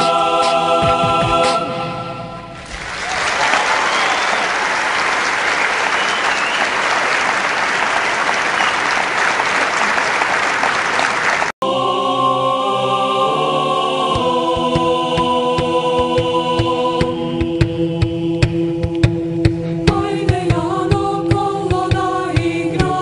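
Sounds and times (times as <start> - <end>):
choir-like chords: 0.0 - 2.6, 11.6 - 23.0.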